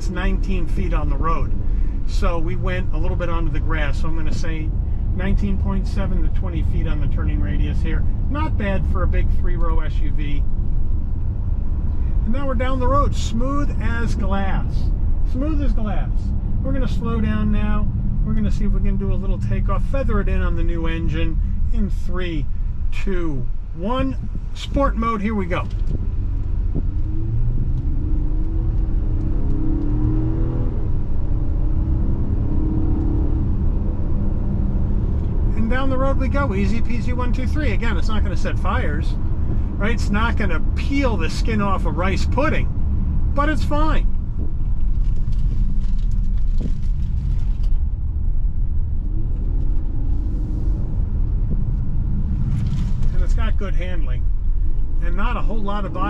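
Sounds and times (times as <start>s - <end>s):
road rumble: 0.0s - 56.0s
car engine accelerating hard: 25.6s - 56.0s.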